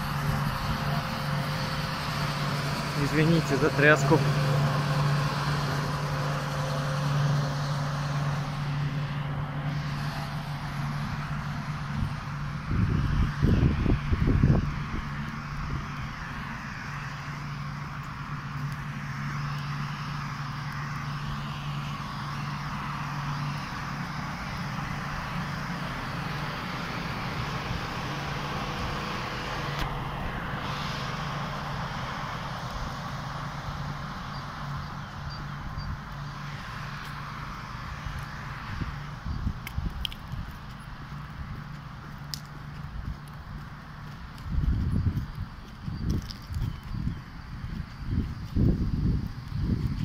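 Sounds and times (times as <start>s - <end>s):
train equipment humming: 0.0s - 50.0s
footsteps walking: 17.4s - 27.0s, 36.0s - 50.0s
hiss: 30.4s - 32.4s.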